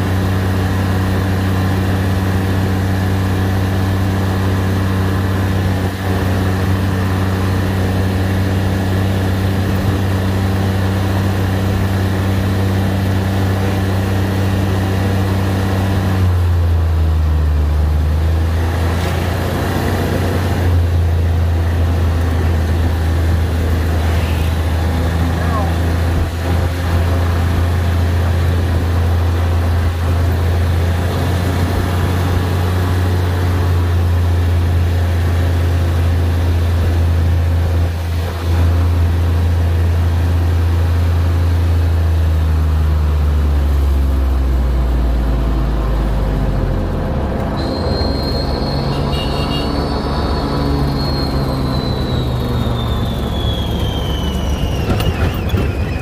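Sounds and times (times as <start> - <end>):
engine droning: 0.0 - 56.0
tyre and road noise: 0.0 - 56.0
thin high whine: 47.4 - 56.0.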